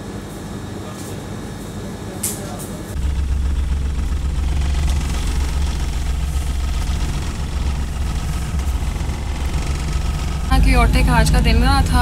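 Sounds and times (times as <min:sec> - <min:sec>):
car engine and road noise: 0:03.0 - 0:12.0.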